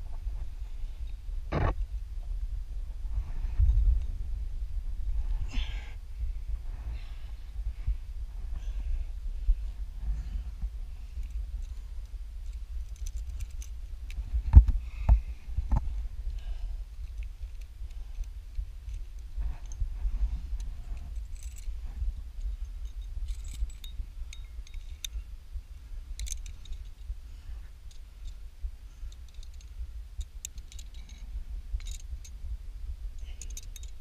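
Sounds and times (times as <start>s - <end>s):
steady low rumble: 0.0s - 34.0s
metal climbing gear clinking: 9.6s - 14.4s, 16.3s - 25.3s, 26.1s - 32.4s, 33.2s - 34.0s.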